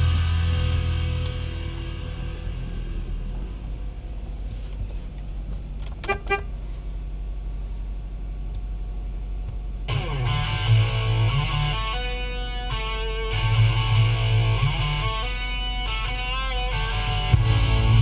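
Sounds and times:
electric guitar music: 0:00.0 - 0:03.4, 0:09.9 - 0:18.0
car engine idling: 0:00.0 - 0:18.0
car horn toots: 0:06.0 - 0:06.6.

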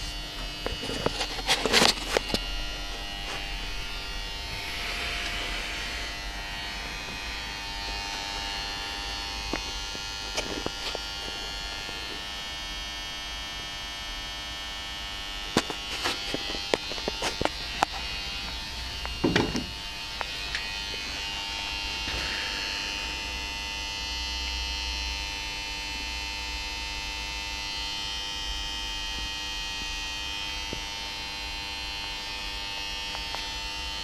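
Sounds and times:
electrical hum and buzz: 0:00.0 - 0:34.0
sharp knocks: 0:19.2 - 0:19.8.

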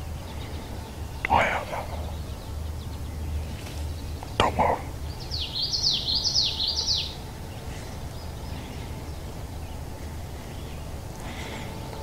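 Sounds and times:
low background noise: 0:00.0 - 0:12.0
small songbird singing: 0:00.0 - 0:12.0.

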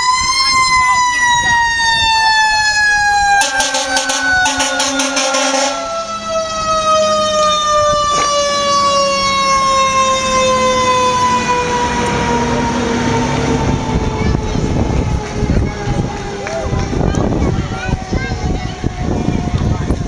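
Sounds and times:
fire truck siren wail: 0:00.0 - 0:20.0.

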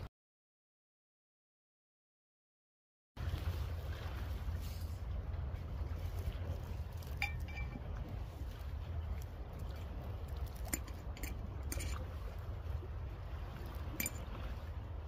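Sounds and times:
low rumble of wind: 0:03.2 - 0:15.0.

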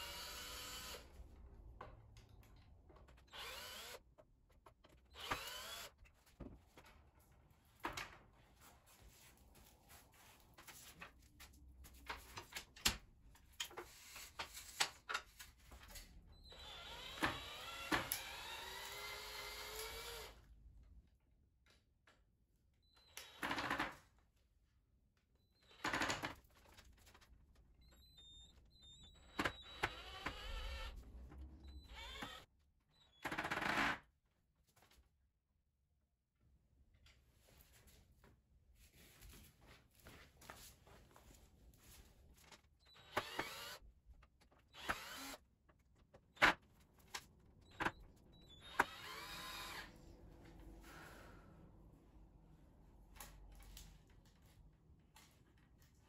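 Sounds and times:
cordless drill into wood: 0:00.0 - 0:01.0, 0:03.3 - 0:04.0, 0:05.1 - 0:06.0, 0:16.5 - 0:20.4, 0:29.3 - 0:31.0, 0:31.7 - 0:32.5, 0:42.9 - 0:43.8, 0:44.7 - 0:45.4, 0:47.7 - 0:49.9.

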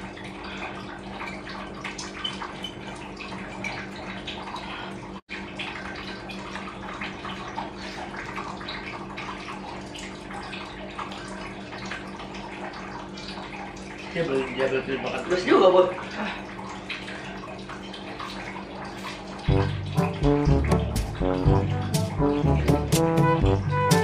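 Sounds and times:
steady hum: 0:19.4 - 0:24.0.

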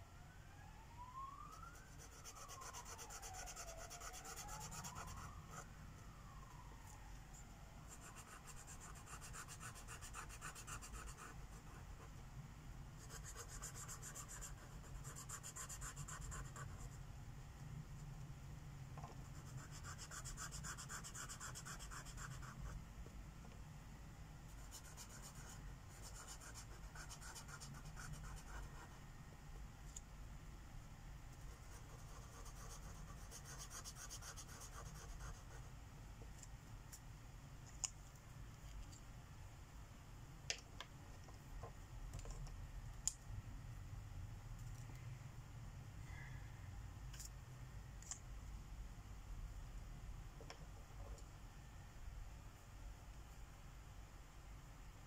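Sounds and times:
faint siren wailing: 0:00.0 - 0:08.6
marker scratching on paper: 0:07.9 - 0:12.1, 0:13.0 - 0:16.9, 0:19.3 - 0:22.7, 0:24.6 - 0:29.0, 0:31.4 - 0:35.6.

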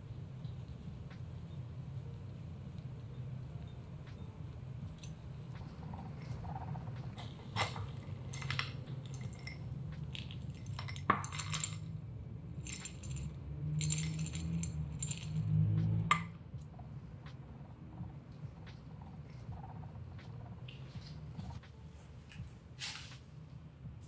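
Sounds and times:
pellets clinking and rattling: 0:07.2 - 0:11.9, 0:12.6 - 0:15.5.

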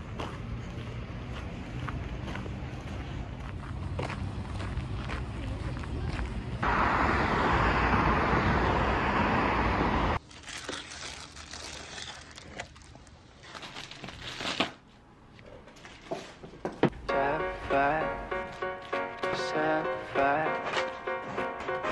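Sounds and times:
loud rushing noise: 0:06.6 - 0:10.2
plastic bag crinkling: 0:10.2 - 0:14.6
background music: 0:16.9 - 0:21.9.

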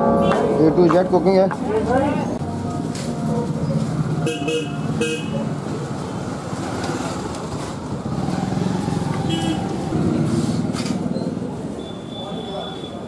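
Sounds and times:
street traffic: 0:00.0 - 0:13.0
vehicle horn toots: 0:04.2 - 0:05.4, 0:09.2 - 0:09.8.

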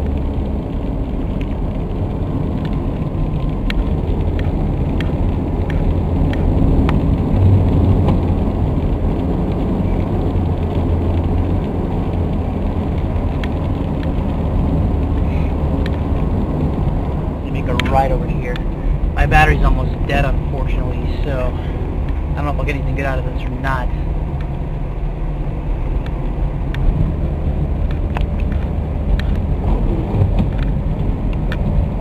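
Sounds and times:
car driving on highway: 0:00.0 - 0:32.0.

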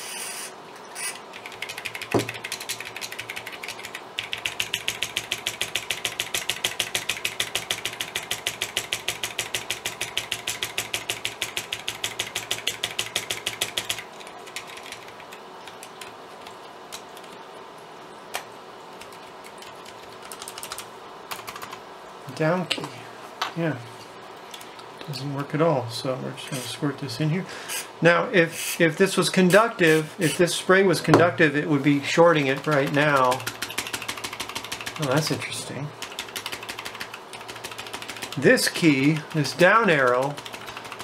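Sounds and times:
keyboard key tapping: 0:01.4 - 0:15.1, 0:32.4 - 0:35.3, 0:36.0 - 0:38.4.

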